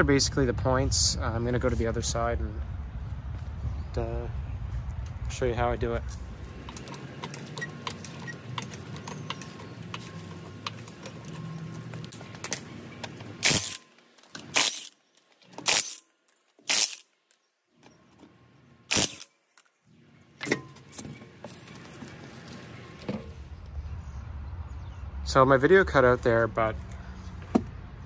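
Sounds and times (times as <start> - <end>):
impact wrench bursts: 13.4 - 13.8, 14.4 - 15.0, 15.6 - 16.1, 16.7 - 17.1, 18.9 - 19.3.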